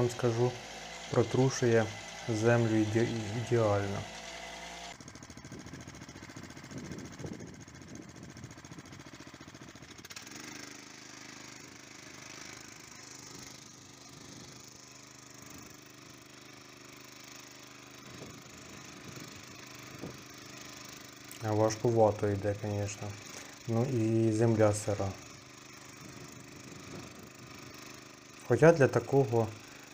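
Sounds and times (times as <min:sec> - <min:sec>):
small tractor engine under load: 0:00.0 - 0:29.9
fast rattle: 0:00.1 - 0:29.9.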